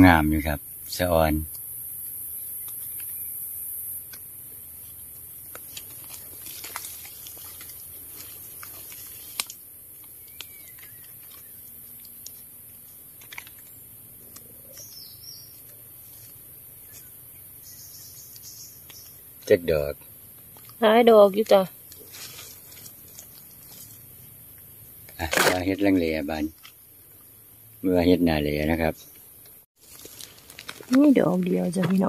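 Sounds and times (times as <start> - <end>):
steady high hiss: 0.0 - 11.0, 11.7 - 29.5
twigs and leaves crackling: 2.5 - 3.4, 4.0 - 19.7, 20.3 - 27.4, 29.0 - 32.0
bird chirp: 10.1 - 12.2, 13.6 - 19.7.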